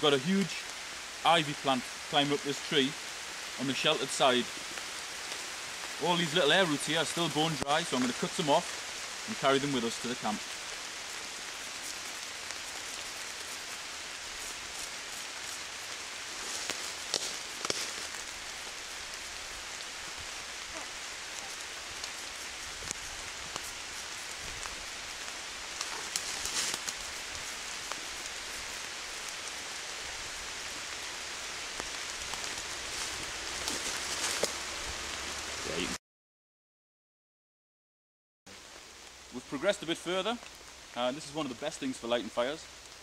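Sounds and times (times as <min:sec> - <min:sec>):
steady rain in woodland: 0:00.0 - 0:36.0, 0:38.5 - 0:43.0
crackles of roots cut with knife: 0:10.4 - 0:19.3, 0:20.7 - 0:29.6, 0:31.7 - 0:34.8.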